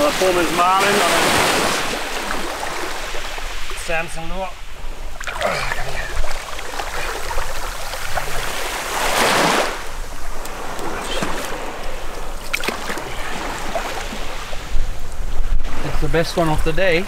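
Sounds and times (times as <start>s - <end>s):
fish splashing: 0.0s - 3.6s, 5.0s - 14.8s
water lapping around legs: 5.0s - 15.0s.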